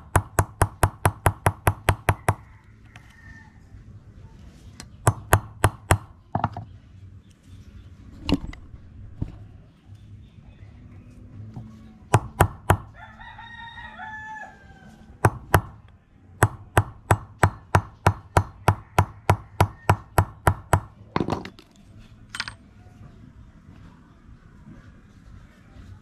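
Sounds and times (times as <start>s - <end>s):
rooster crowing: 2.0s - 3.8s, 12.9s - 15.2s, 18.5s - 20.2s.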